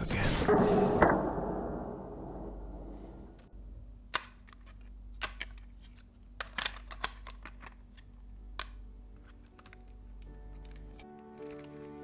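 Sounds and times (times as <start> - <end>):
plastic camera clicks and rattles: 4.1 - 12.0.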